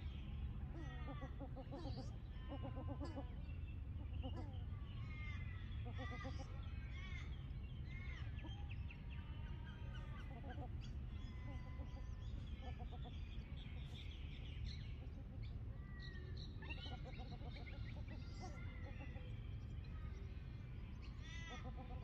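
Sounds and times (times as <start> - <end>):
birds chirping and whistling: 10.8 - 18.8.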